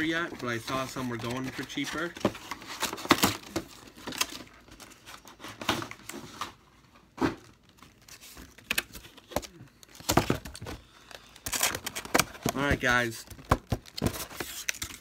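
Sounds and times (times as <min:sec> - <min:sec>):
plastic packaging crinkling and tearing: 0:07.5 - 0:15.0.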